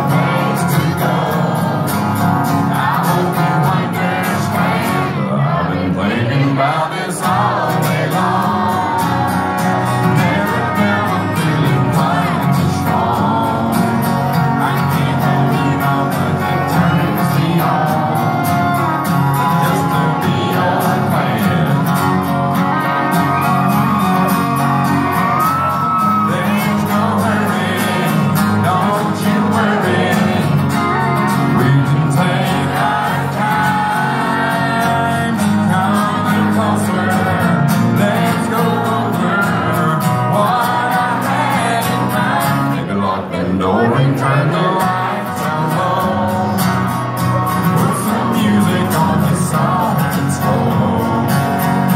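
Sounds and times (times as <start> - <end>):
country band playing: 0.0 - 51.9
deep male voice singing: 0.0 - 51.9.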